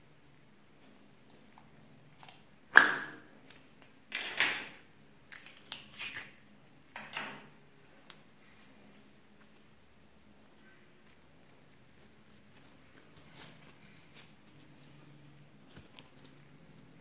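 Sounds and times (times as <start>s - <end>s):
sticky slime crackling: 5.2s - 6.5s, 7.9s - 17.0s.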